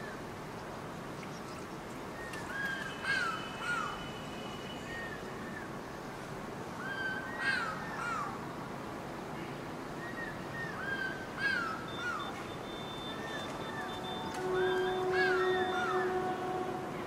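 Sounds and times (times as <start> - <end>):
kingfisher whistled calls: 10.1 - 16.2.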